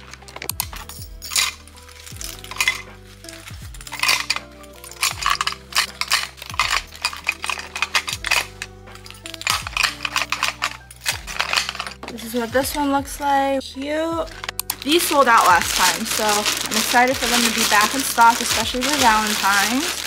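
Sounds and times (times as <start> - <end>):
soft background music with beat: 0.0 - 20.0
metal key rings clinking: 0.3 - 12.1.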